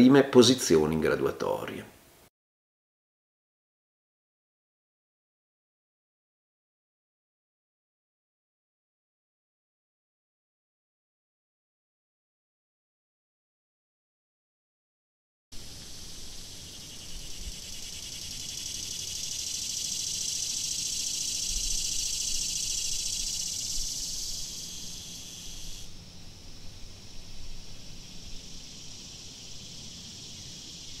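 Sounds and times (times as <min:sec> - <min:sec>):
insects chirring: 0:15.6 - 0:31.0.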